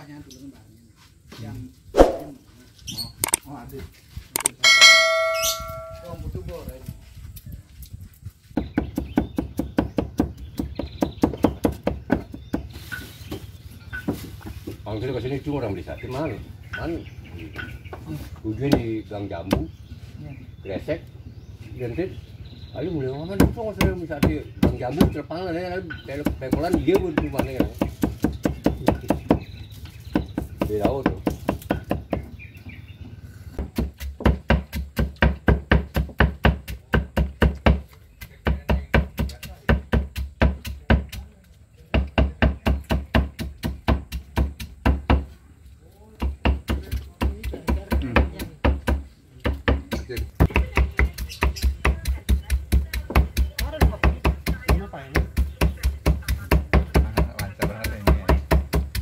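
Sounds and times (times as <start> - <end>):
knife chopping on wooden block: 33.6 - 41.2, 41.9 - 45.3, 46.2 - 59.0.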